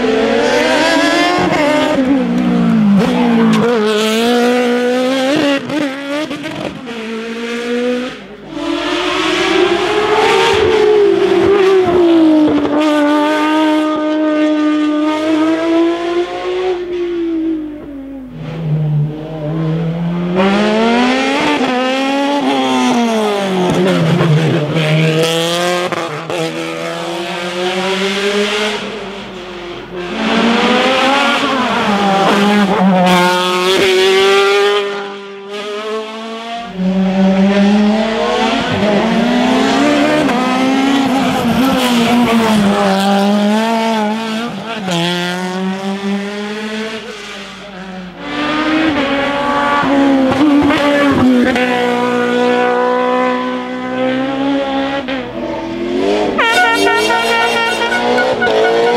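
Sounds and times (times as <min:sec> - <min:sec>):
racing cars accelerating through gears: 0:00.0 - 0:58.9.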